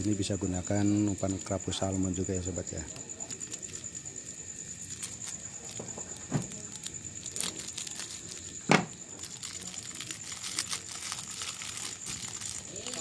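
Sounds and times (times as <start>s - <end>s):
plastic packet crinkling: 2.8s - 13.0s.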